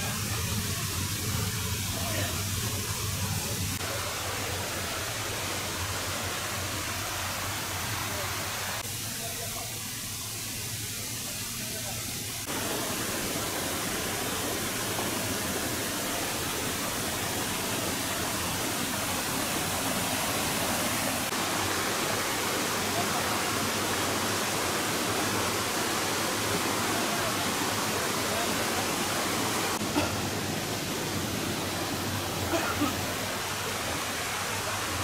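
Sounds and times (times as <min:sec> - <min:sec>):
creek water rushing over rocks: 0:12.4 - 0:35.0.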